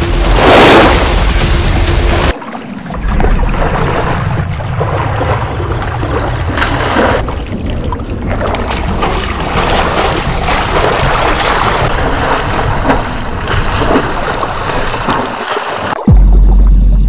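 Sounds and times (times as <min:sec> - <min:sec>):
feet splashing through shallow water: 0:02.3 - 0:07.4, 0:08.3 - 0:16.0.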